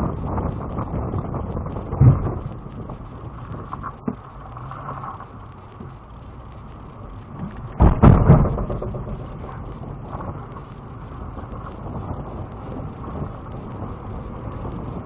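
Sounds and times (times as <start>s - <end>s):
engine and drivetrain noise: 0.0s - 15.0s
loud thumps and rattles: 1.7s - 3.0s, 7.4s - 10.4s.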